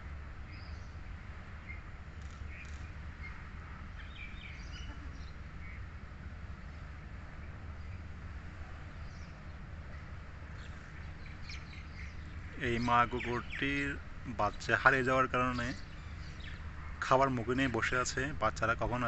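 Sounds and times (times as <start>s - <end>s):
faint bird chirps: 4.0s - 5.9s.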